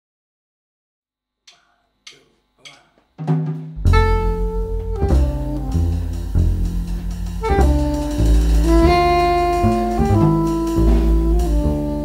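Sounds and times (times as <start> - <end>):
drum kit: 1.5 - 12.0
double bass notes: 3.7 - 12.0
soprano saxophone melody: 3.8 - 12.0.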